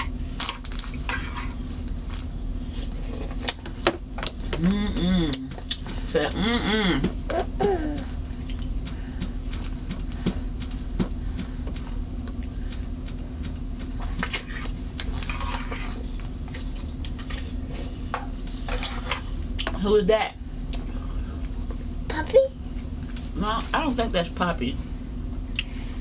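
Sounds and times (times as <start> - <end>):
toddler eating noodles: 4.3 - 19.4.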